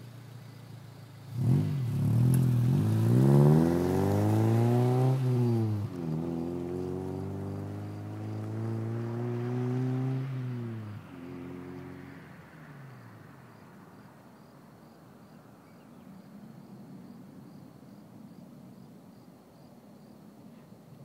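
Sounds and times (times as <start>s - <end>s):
car engine pulling away: 0.0s - 14.0s
cricket chirping: 0.0s - 21.0s.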